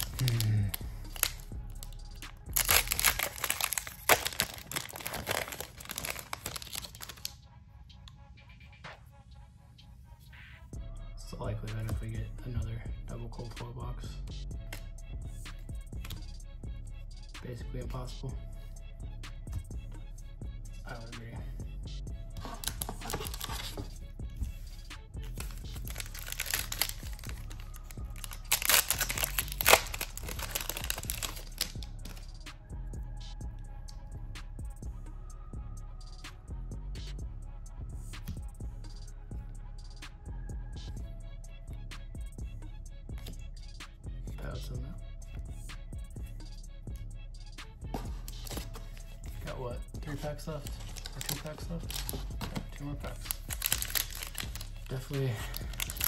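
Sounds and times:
foil wrapper tearing and crinkling: 0.0s - 1.9s, 2.5s - 7.3s, 22.4s - 23.8s, 25.2s - 32.2s, 50.7s - 56.0s.

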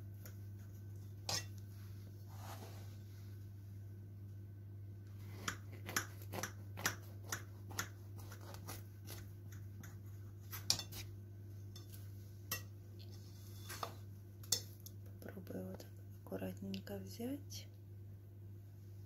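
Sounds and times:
knife crunching through pie crust: 5.2s - 11.1s.

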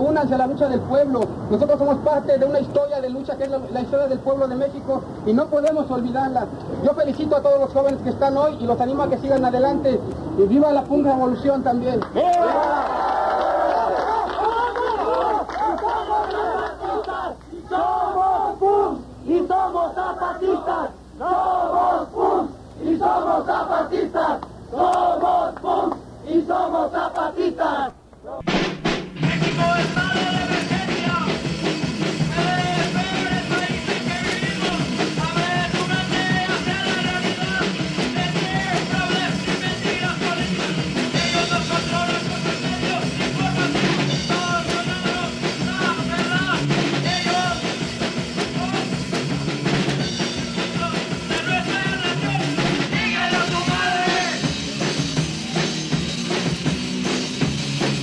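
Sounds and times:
punk rock band playing: 28.5s - 58.0s.

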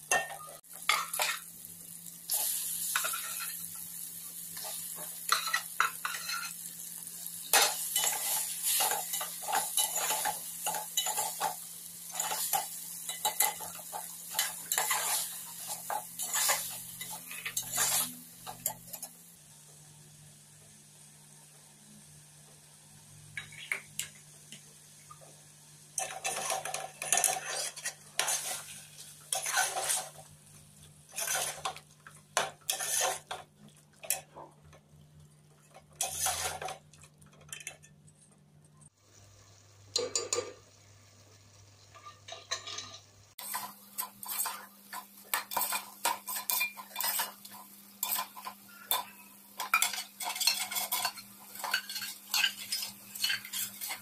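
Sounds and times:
spoon scraping metal pot: 5.3s - 6.6s, 16.2s - 19.1s, 26.0s - 28.7s, 29.3s - 30.1s, 31.1s - 31.7s, 32.6s - 33.4s, 36.0s - 36.8s, 42.0s - 54.0s.

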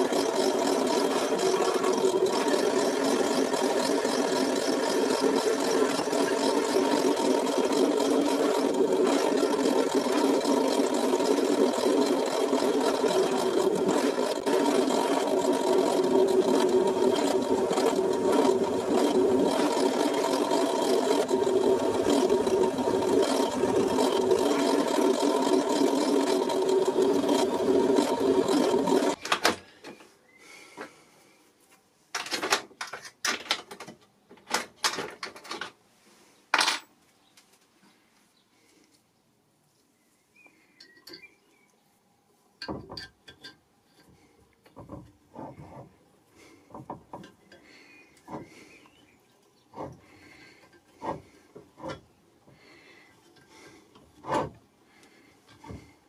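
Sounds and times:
pillar drill drilling metal: 0.0s - 29.2s.

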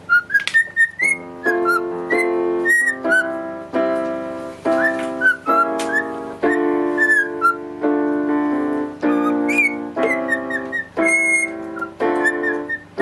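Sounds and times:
cockatiel whistling: 0.0s - 3.4s, 4.7s - 7.6s, 9.0s - 13.0s
single piano notes: 0.0s - 13.0s.

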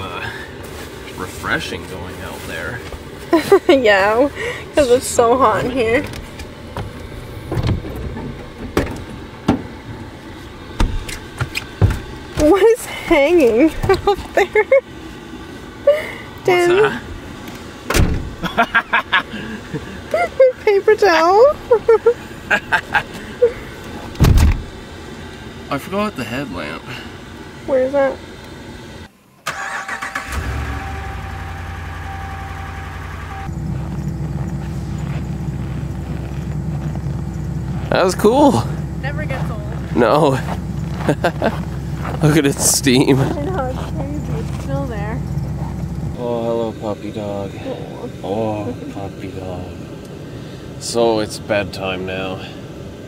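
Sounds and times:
low steady rumble: 0.0s - 29.2s, 30.2s - 53.0s
truck engine idling: 0.0s - 53.0s
knocks and thumps: 6.1s - 9.8s, 10.8s - 12.5s.

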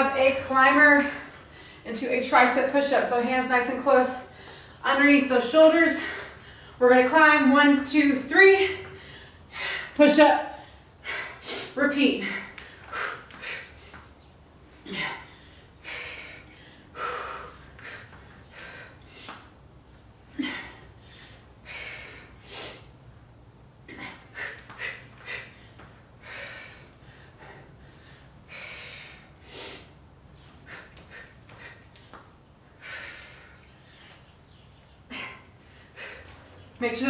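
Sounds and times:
woman breathing hard: 1.0s - 1.9s, 4.2s - 4.9s, 5.9s - 6.8s, 8.7s - 14.1s, 14.8s - 19.6s, 20.3s - 23.0s, 23.8s - 32.1s, 32.7s - 34.3s, 35.0s - 36.7s.

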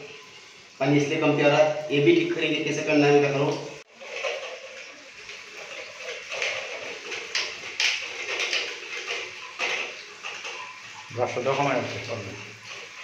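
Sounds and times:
brush scrubbing plastic: 3.9s - 13.0s.

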